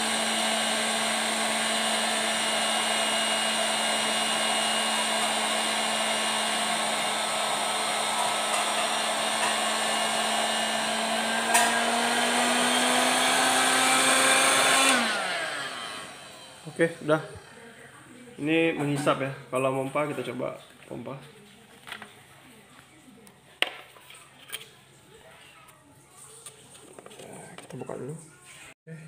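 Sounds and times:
electric pump humming: 0:00.0 - 0:17.0.

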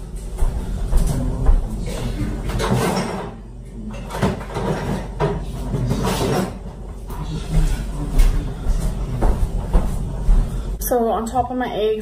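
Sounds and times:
kitchen knocks and clatter: 0:02.3 - 0:10.5.

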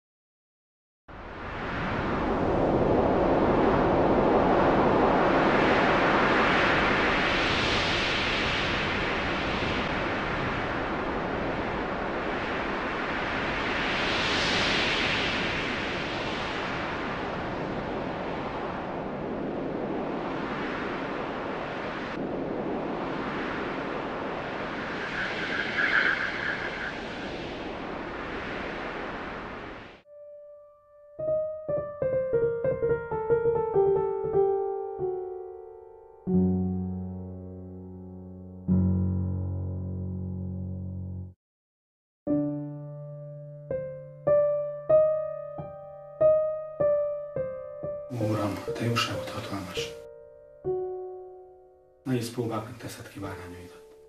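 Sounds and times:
steady rushing noise: 0:01.2 - 0:30.0
piano notes: 0:30.1 - 0:41.3, 0:42.3 - 0:52.4.

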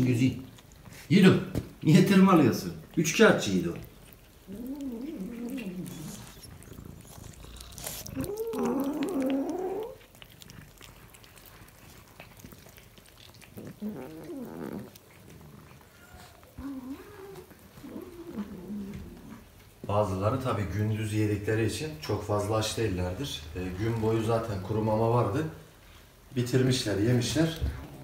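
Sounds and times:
cat making drawn-out calls: 0:07.7 - 0:10.0.

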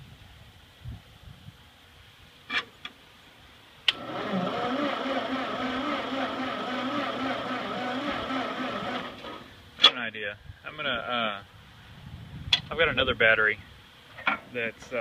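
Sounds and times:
engine cranking whine: 0:03.9 - 0:09.6.

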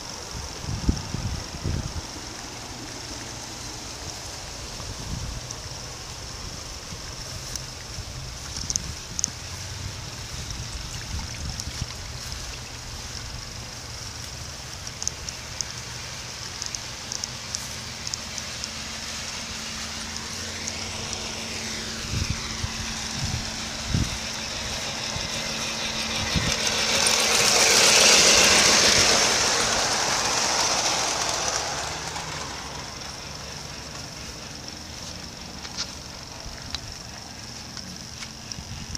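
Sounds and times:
rushing noise: 0:00.0 - 0:38.9
steady hum: 0:00.0 - 0:38.9
wheels clicking over rails: 0:00.0 - 0:38.9
model train rumble: 0:12.5 - 0:38.9.

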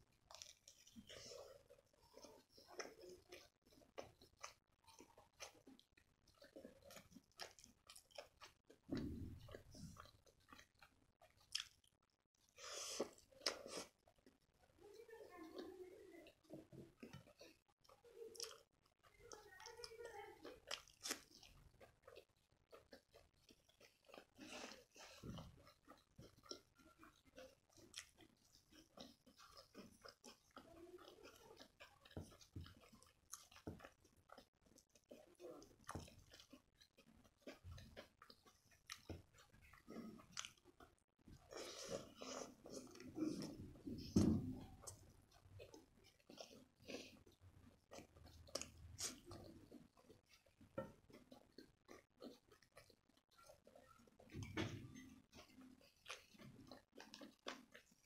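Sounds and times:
person chewing food: 0:00.0 - 0:58.0
wet mouth clicks: 0:47.9 - 0:58.0.

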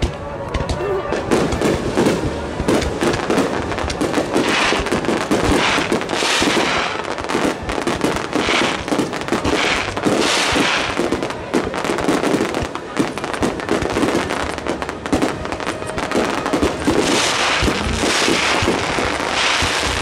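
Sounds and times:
firework shells bursting: 0:02.7 - 0:11.0, 0:16.2 - 0:20.0
firework hiss: 0:02.9 - 0:12.5, 0:14.1 - 0:20.0.

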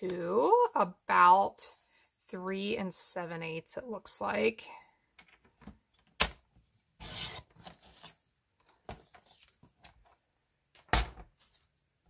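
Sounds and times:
blade sliding through paper: 0:07.0 - 0:08.1.

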